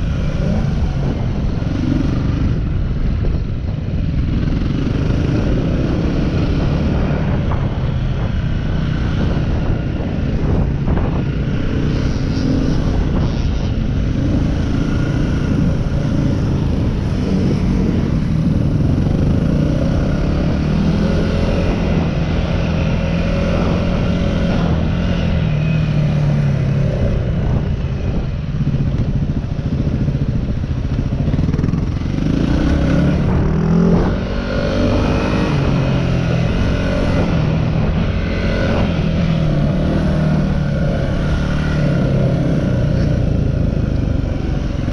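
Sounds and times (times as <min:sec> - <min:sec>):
wind rumble on microphone: 0:00.0 - 0:44.9
dirt bike engine revving: 0:31.5 - 0:43.3.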